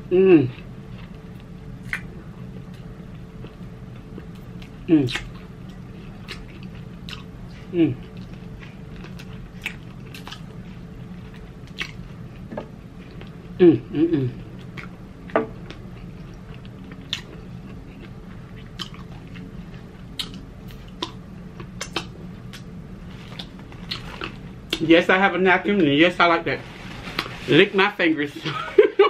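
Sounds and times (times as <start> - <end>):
person humming: 0.0 - 0.6, 4.9 - 5.2, 7.6 - 8.1, 13.6 - 14.5
close-miked chewing: 0.6 - 13.5, 15.7 - 24.9.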